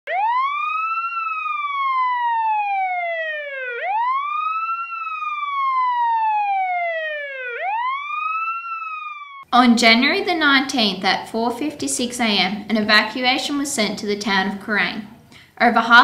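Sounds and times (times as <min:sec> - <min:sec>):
siren wailing: 0:00.1 - 0:09.5.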